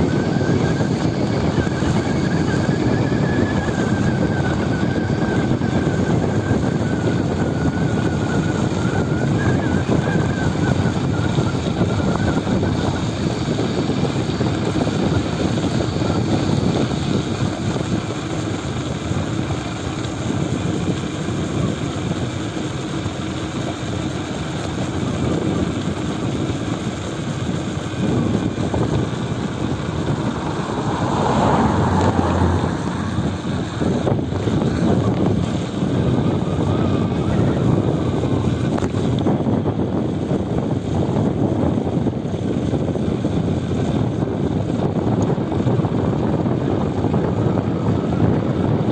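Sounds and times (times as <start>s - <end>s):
bicycle road noise: 0.0s - 48.9s
wind rushing over microphone: 0.0s - 48.9s
cars passing close by: 28.1s - 35.4s.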